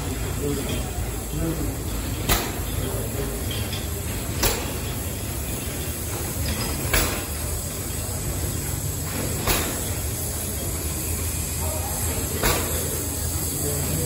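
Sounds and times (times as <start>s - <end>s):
steam engine running: 0.0s - 14.0s
sharp mechanical knock: 2.3s - 2.6s.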